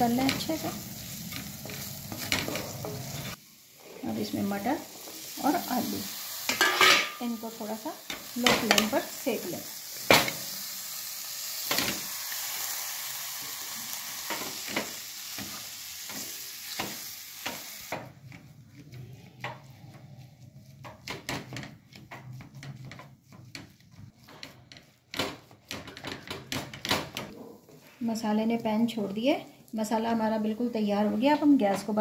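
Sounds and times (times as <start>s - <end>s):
peas sizzling in hot oil: 0.0s - 32.0s
spatula scraping thick mash: 18.1s - 26.3s
wooden spatula tapping pan: 20.8s - 27.3s.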